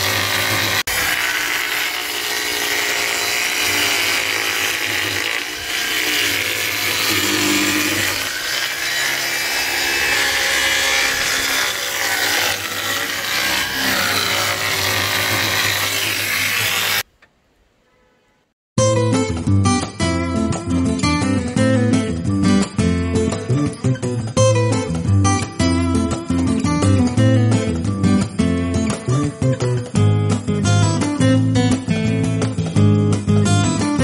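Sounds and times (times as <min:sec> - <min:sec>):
electric jigsaw cutting board: 0:00.0 - 0:17.1.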